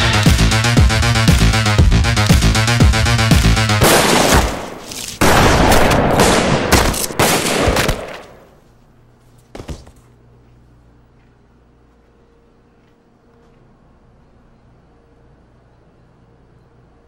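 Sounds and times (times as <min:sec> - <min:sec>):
electronic music: 0:00.0 - 0:03.8
handgun shots: 0:03.8 - 0:08.5.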